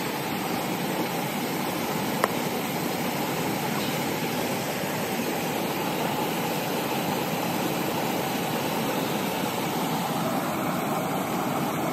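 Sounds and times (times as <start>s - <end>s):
steady rushing noise: 0.0s - 11.9s.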